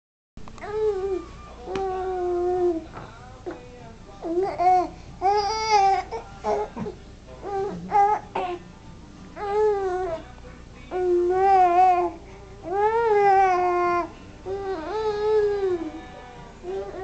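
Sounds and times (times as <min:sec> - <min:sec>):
baby whining: 0:00.6 - 0:02.9, 0:04.2 - 0:06.8, 0:07.4 - 0:08.6, 0:09.4 - 0:10.2, 0:10.9 - 0:17.0.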